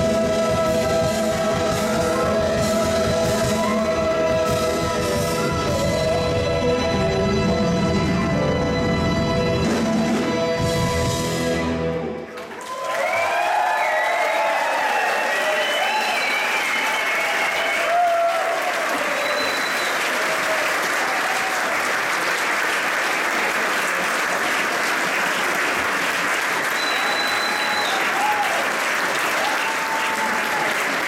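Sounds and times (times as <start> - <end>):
audience cheering: 3.4 - 4.6, 12.3 - 31.0
audience applauding: 12.1 - 31.0.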